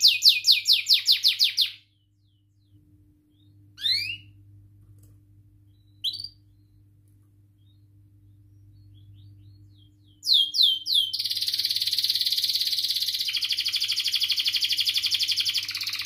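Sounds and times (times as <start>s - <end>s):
canary trilling: 0.0s - 2.4s, 3.3s - 4.4s, 5.8s - 6.7s, 8.8s - 16.0s.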